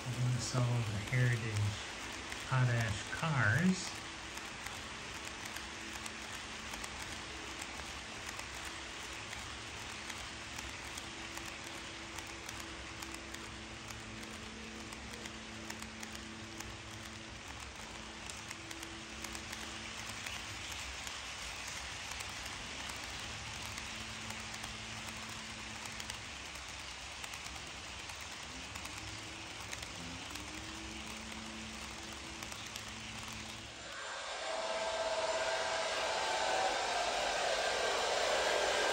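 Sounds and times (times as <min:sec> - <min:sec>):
faint hum: 0:00.0 - 0:38.9
model train wheels clicking: 0:00.0 - 0:38.9.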